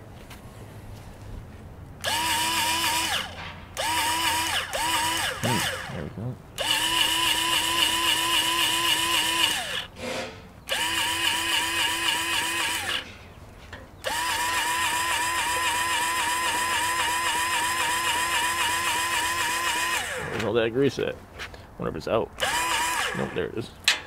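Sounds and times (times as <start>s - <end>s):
electric grease gun whining: 2.0s - 10.0s, 10.7s - 13.1s, 14.0s - 20.5s, 22.4s - 23.5s.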